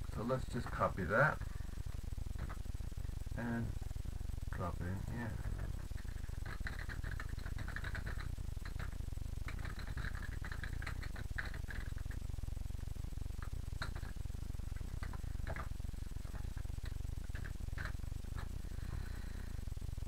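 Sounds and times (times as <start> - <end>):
steady low hum: 0.0 - 20.0
typing on computer keyboard: 6.0 - 12.2, 13.4 - 14.1, 17.3 - 18.5.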